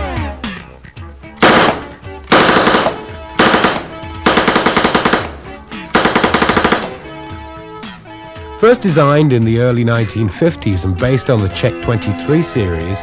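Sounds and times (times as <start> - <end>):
background music: 0.0 - 13.0
submachine gun bursts: 1.4 - 7.3.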